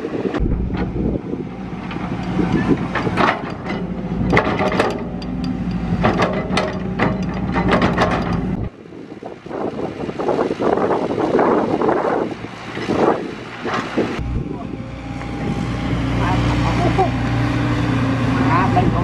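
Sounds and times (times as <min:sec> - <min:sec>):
excavator diesel engine running: 0:00.4 - 0:08.7, 0:14.2 - 0:19.0
metal clanks and knocks: 0:00.4 - 0:08.7.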